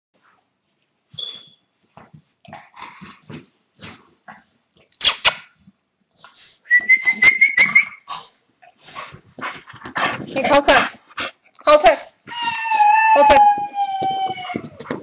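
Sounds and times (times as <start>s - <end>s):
dog whining: 12.3s - 15.0s.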